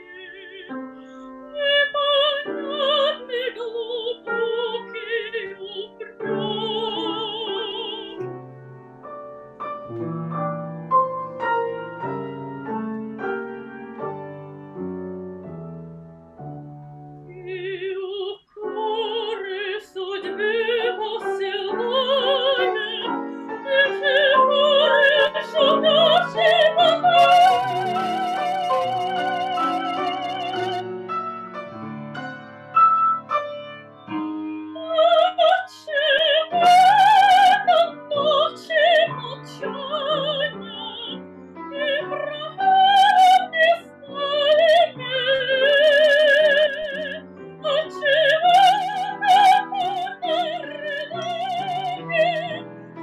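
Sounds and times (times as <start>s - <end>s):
soprano singing operatic aria: 0.0s - 8.3s, 17.2s - 31.0s, 34.1s - 52.8s
piano accompaniment: 0.0s - 53.0s.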